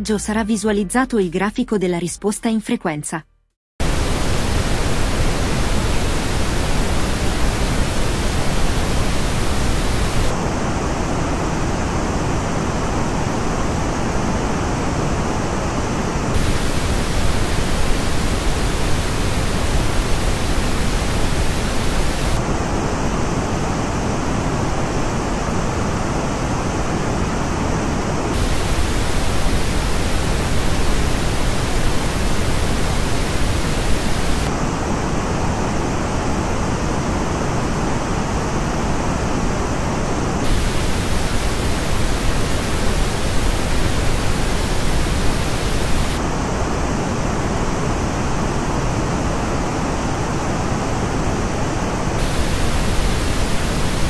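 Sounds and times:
steady pink noise: 3.8s - 54.0s.

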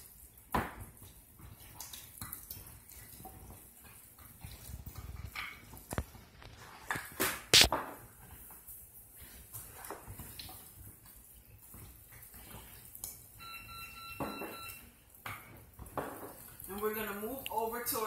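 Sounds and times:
wet squishing of hands on meat: 0.0s - 13.4s, 15.0s - 18.0s
brief steady tone: 13.4s - 14.8s.

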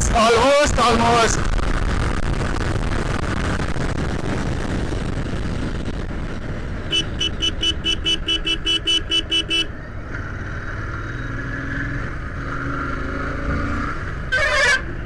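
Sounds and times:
road noise: 0.0s - 15.0s
motorcycle engine: 1.4s - 15.0s
horn beeping rapidly: 6.9s - 9.7s.

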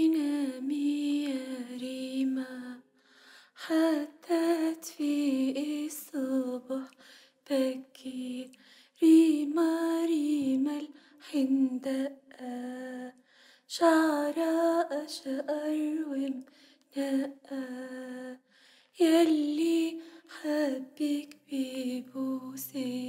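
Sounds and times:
woman singing lullaby unaccompanied: 19.0s - 23.0s.

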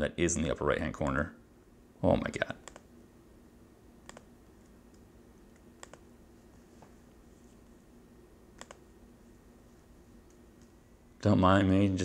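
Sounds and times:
computer mouse clicks: 2.6s - 2.9s, 4.0s - 6.1s, 8.6s - 8.8s, 10.2s - 10.8s.

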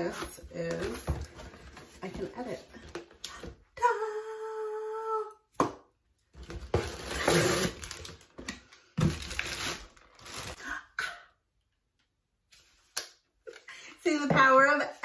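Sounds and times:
plastic packaging crinkling: 6.5s - 10.6s.

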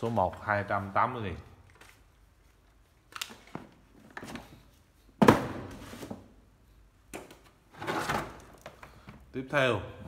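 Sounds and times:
plastic case set down thunk: 5.2s - 5.7s.

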